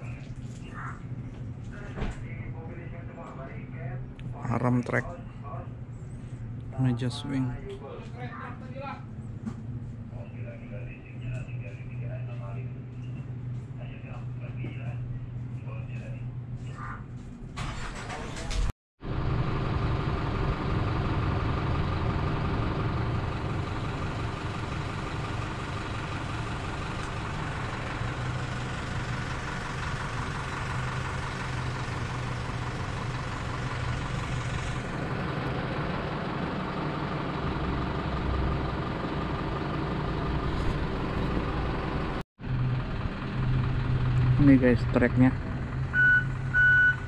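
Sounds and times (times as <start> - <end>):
heavy diesel engine idling: 17.6 - 47.0.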